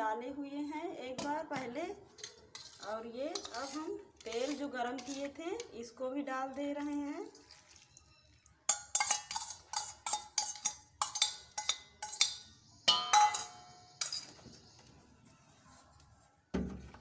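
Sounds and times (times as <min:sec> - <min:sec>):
spoon clinking against steel bowl: 0:02.1 - 0:05.8, 0:08.6 - 0:14.8
ringing steel clang: 0:12.9 - 0:14.3.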